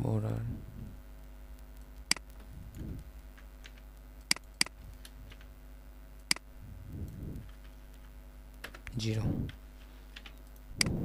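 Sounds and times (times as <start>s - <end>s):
computer keyboard clicks: 10.1s - 11.0s.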